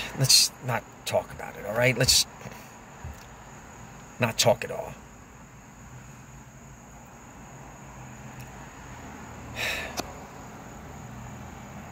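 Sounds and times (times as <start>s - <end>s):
breathy exhale: 9.6s - 10.0s.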